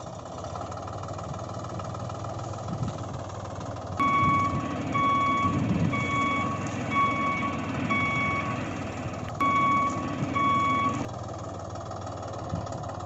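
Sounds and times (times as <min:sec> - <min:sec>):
low engine rumble: 0:00.0 - 0:13.0
reversing alarm beeping: 0:04.0 - 0:11.1.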